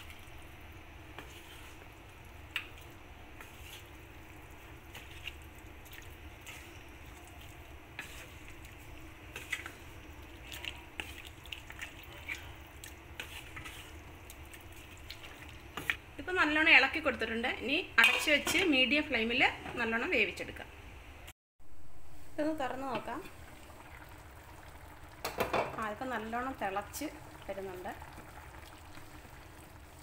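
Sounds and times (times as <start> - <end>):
wet squishing of stirred food: 0.0 - 16.1, 25.9 - 30.0.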